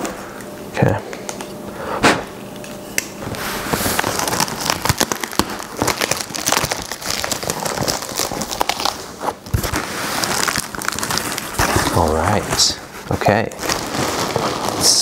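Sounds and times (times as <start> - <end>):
packing tape ripping: 3.0 - 15.0
cardboard crackling and crinkling: 3.2 - 15.0.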